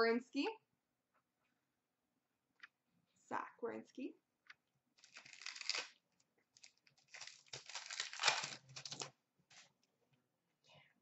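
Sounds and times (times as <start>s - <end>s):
card wrappers rustling and crinkling: 5.0s - 9.7s.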